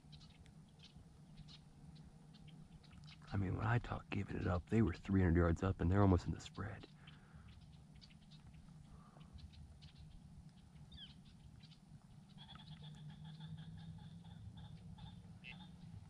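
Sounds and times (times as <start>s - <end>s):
faint duck calls: 12.3s - 15.8s.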